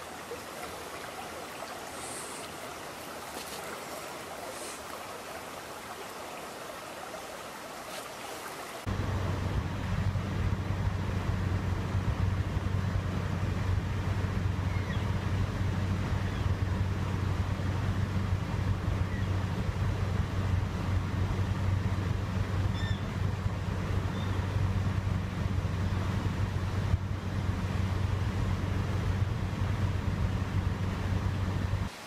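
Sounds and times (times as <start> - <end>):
stream flowing over gravel: 0.0 - 8.9, 30.7 - 32.0.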